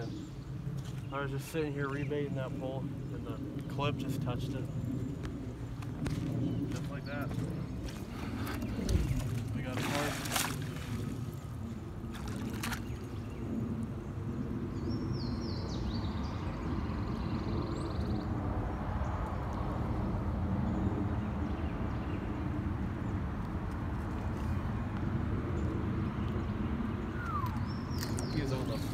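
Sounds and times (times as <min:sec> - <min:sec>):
low outdoor rumble: 0:00.0 - 0:28.9
bird trilling: 0:27.1 - 0:28.5.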